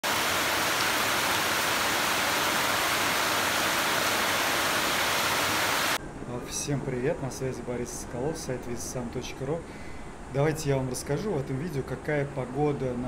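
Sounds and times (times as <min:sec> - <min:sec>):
heavy rain on foliage: 0:00.0 - 0:06.0.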